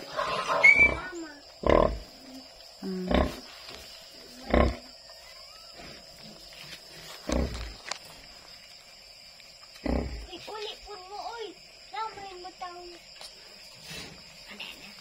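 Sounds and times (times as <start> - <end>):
sow grunting: 0.0 - 2.2, 4.3 - 6.1.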